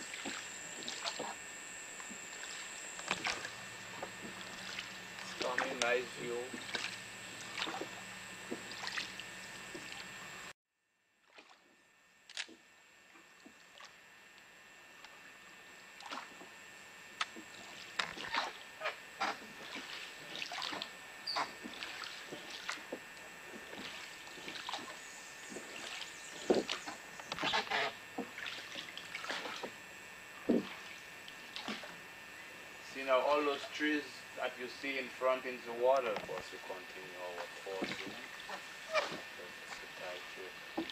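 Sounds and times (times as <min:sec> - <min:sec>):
oars splashing in water: 0:00.0 - 0:10.2, 0:11.2 - 0:12.6, 0:13.2 - 0:14.0, 0:16.0 - 0:16.5, 0:17.2 - 0:32.0, 0:35.0 - 0:40.9
faint steady hiss: 0:29.8 - 0:40.9.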